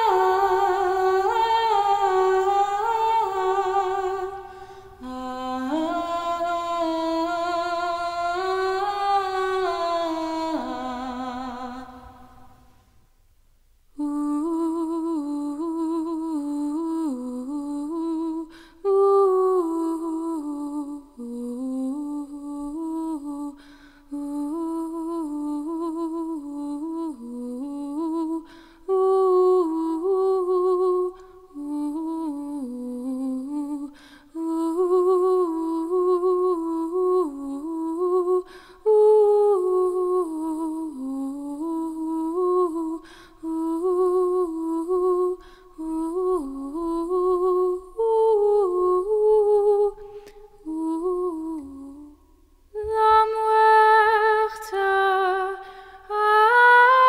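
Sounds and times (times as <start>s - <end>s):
woman breathing: 4.4s - 5.0s, 18.5s - 18.8s, 23.6s - 24.1s, 28.4s - 28.8s, 33.9s - 34.3s, 38.5s - 38.8s, 43.0s - 43.4s, 45.4s - 45.8s, 50.0s - 50.5s, 55.6s - 56.1s.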